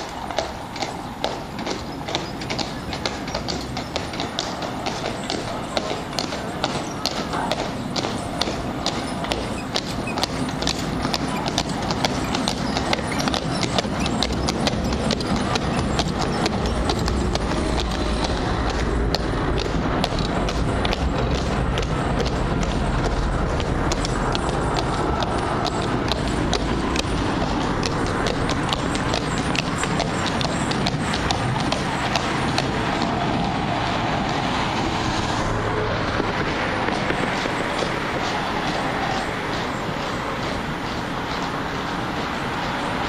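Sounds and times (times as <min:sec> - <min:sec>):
faint hoofbeats: 0:00.0 - 0:34.8, 0:35.5 - 0:43.0
horse hooves clip-clopping on road: 0:00.0 - 0:43.0
tram wheels rolling on rails: 0:00.0 - 0:43.0
low rumble: 0:13.4 - 0:40.4.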